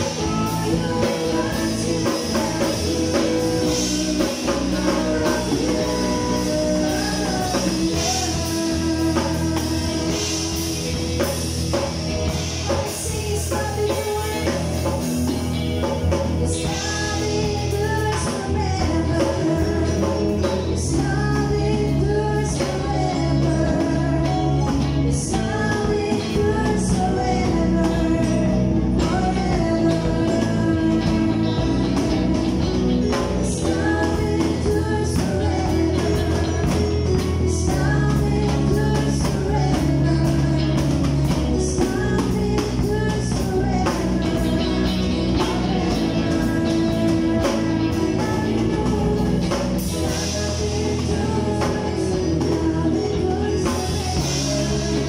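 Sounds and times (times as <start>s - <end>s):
bass guitar: 0.0s - 55.0s
drum kit: 0.0s - 55.0s
electric guitars: 0.0s - 55.0s
person singing: 0.0s - 55.0s.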